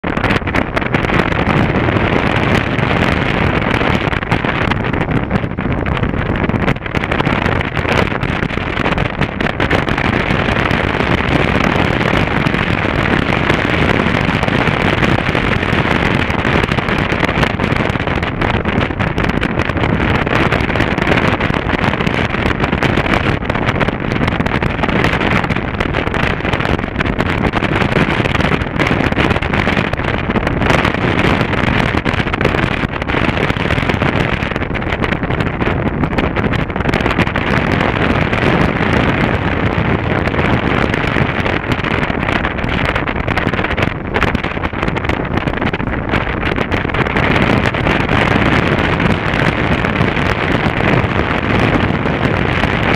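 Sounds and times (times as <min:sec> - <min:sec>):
motorcycle engine and road noise: 0:00.0 - 0:52.9
wind rushing over microphone: 0:00.0 - 0:52.9.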